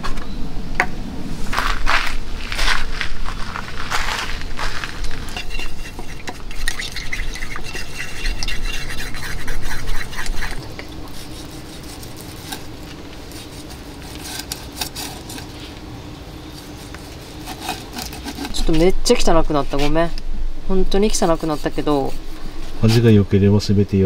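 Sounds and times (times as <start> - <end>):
chopsticks scraping a cup: 5.2 - 15.8, 16.5 - 18.9, 21.0 - 23.2.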